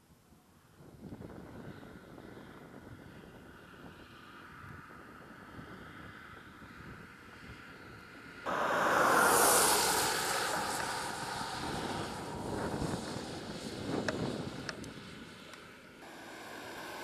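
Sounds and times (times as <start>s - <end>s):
car driving past: 8.5s - 14.7s, 16.0s - 17.0s.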